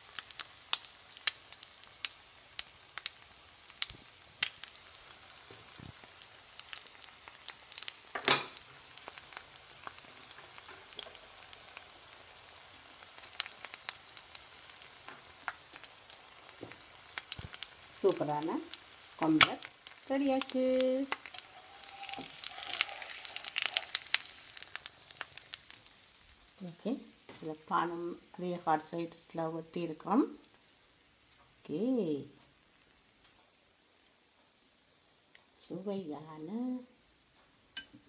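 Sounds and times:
hot oil popping and spitting: 0:00.0 - 0:26.6
egg sizzling in oil: 0:00.0 - 0:31.7, 0:32.5 - 0:35.6.

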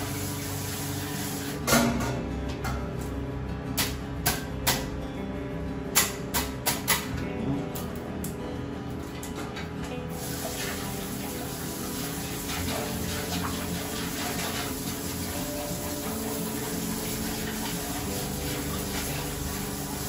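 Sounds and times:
water spray splashing: 0:10.1 - 0:20.0.

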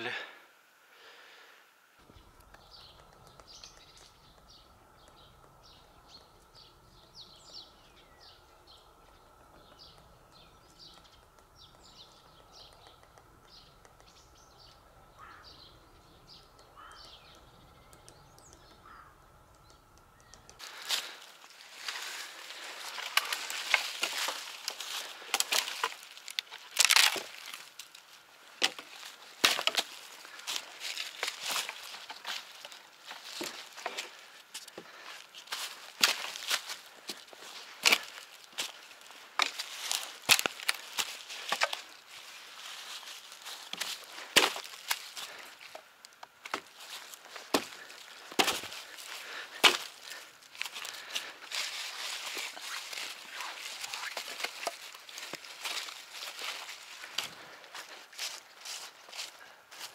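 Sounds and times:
twigs snapping and crackling: 0:02.0 - 0:07.1, 0:08.8 - 0:15.5, 0:16.3 - 0:59.9
branches thrown down: 0:20.6 - 0:28.0, 0:28.6 - 0:34.2, 0:39.4 - 0:45.3, 0:46.4 - 0:57.4.

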